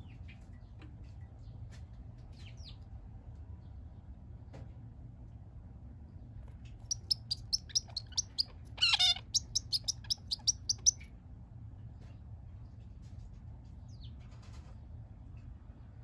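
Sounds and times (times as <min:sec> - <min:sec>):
finch chirping: 0:06.8 - 0:11.0.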